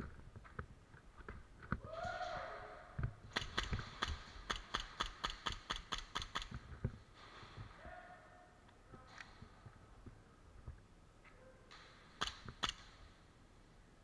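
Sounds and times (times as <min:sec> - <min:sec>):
airsoft pistol shots: 0:03.3 - 0:06.5.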